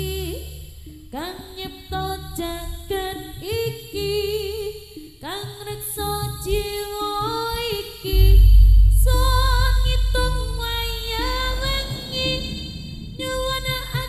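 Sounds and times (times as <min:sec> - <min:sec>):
loud deep low sound: 0:08.1 - 0:14.0
person singing a prayer: 0:08.1 - 0:14.0.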